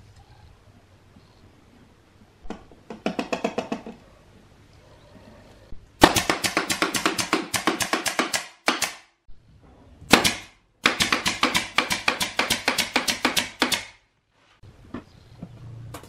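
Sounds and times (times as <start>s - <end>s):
pneumatic nail gun firing: 6.0s - 9.1s, 10.1s - 14.0s.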